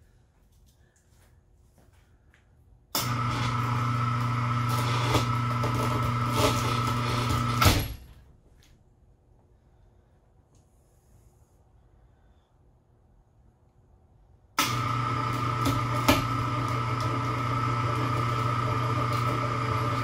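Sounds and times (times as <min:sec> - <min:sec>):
electric hoist humming: 0:03.0 - 0:08.0, 0:14.6 - 0:20.0.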